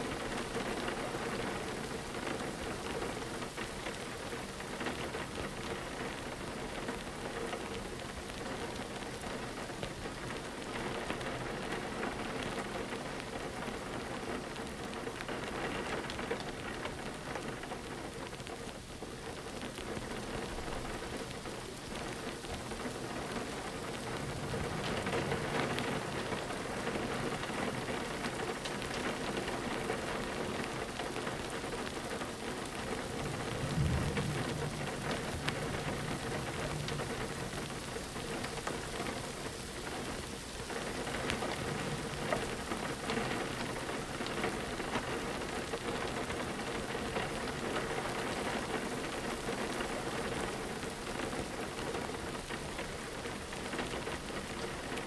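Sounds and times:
rain on a window: 0:00.0 - 0:55.0
distant thunder rumble: 0:23.4 - 0:28.2, 0:32.6 - 0:39.3, 0:41.0 - 0:45.5.

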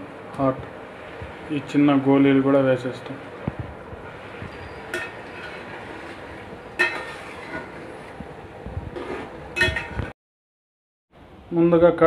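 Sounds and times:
metallic clinks on cooking pot: 0:04.9 - 0:05.2.

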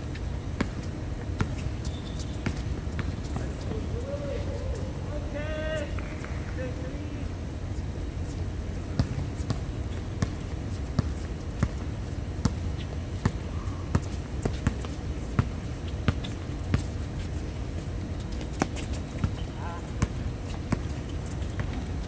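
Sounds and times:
low background rumble: 0:00.0 - 0:22.0
basketball bouncing on hard court: 0:00.6 - 0:03.6, 0:08.9 - 0:12.6, 0:13.2 - 0:17.0, 0:18.3 - 0:22.0.

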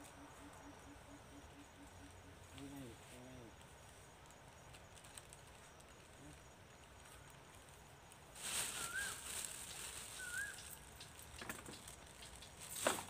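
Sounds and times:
rustling of gear being packed: 0:08.4 - 0:13.0
bird chirps: 0:08.7 - 0:12.6.

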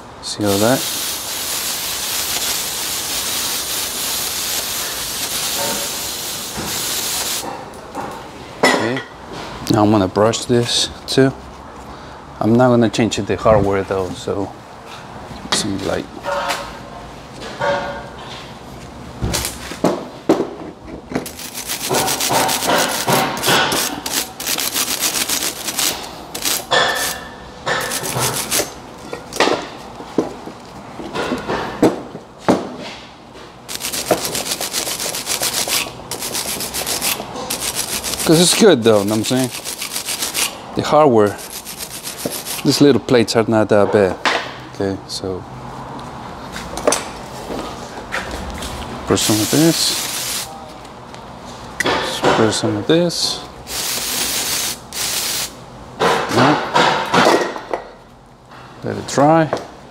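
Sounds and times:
wire brush scrubbing metal: 0:00.4 - 0:07.4, 0:21.3 - 0:28.8, 0:33.7 - 0:42.8, 0:49.2 - 0:50.5
aerosol spray hissing: 0:00.6 - 0:07.4, 0:49.3 - 0:50.5.

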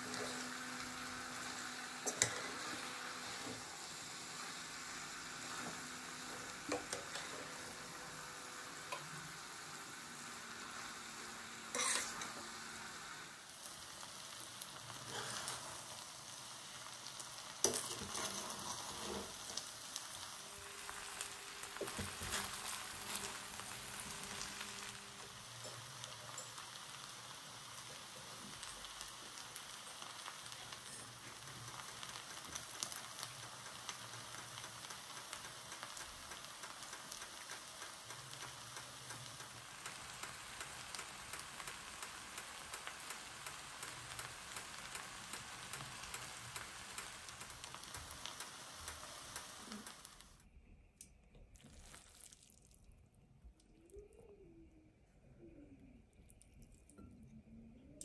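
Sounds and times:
noodles sizzling in pot: 0:00.0 - 0:50.5, 0:51.5 - 0:53.0
metal spoon stirring: 0:11.7 - 0:12.3.

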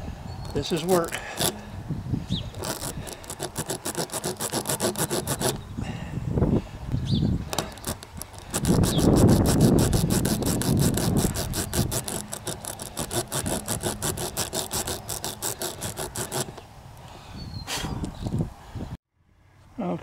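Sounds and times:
reamer rasping in tire rubber: 0:00.5 - 0:01.7, 0:02.5 - 0:05.6, 0:07.5 - 0:16.6.

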